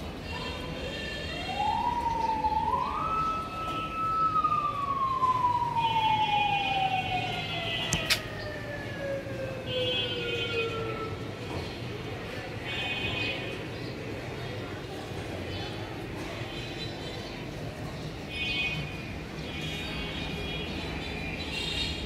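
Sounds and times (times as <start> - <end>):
siren wailing: 1.2 - 11.2
sharp click: 7.9 - 8.3.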